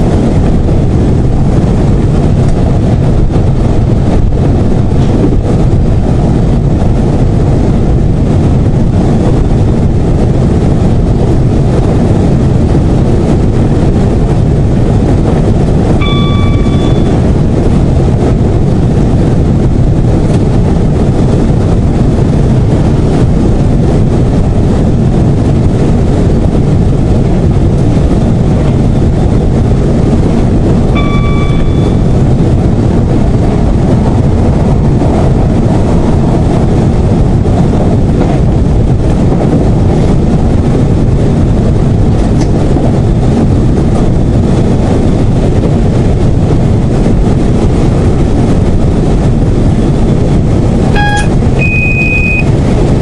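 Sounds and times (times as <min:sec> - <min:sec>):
diesel engine drone: 0:00.0 - 0:53.0
short electronic tone: 0:16.0 - 0:17.2, 0:30.9 - 0:32.2, 0:51.0 - 0:52.5.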